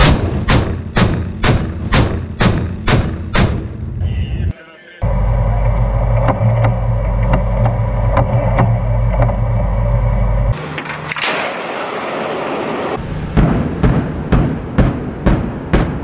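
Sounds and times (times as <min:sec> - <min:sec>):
low rumble with faint reports: 0:04.0 - 0:10.6
noisy rush: 0:04.0 - 0:16.0
sharp crack: 0:10.5 - 0:16.0.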